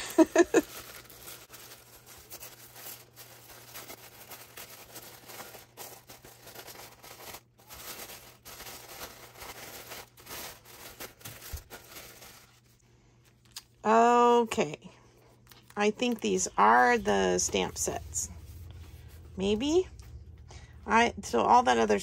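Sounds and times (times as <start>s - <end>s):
paper wrapping rustling: 0.0s - 12.8s, 15.4s - 19.3s.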